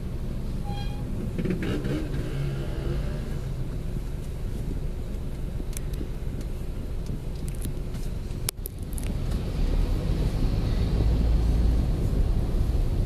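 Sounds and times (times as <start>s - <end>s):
vehicle engine and road rumble: 0.0s - 13.0s
light clicks and rattles: 5.1s - 9.4s.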